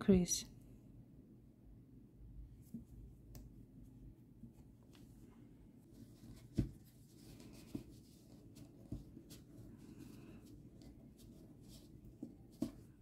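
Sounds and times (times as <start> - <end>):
rustling of yarn and stuffing: 3.8 - 13.0.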